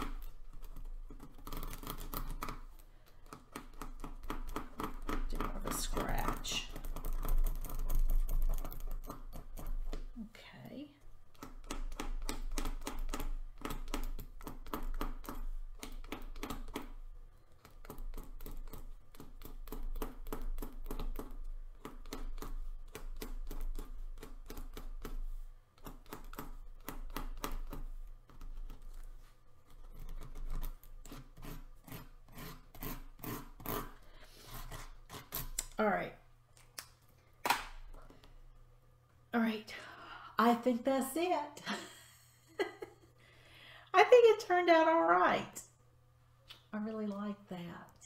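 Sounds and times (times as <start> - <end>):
pen scratching on paper: 29.7 - 35.6.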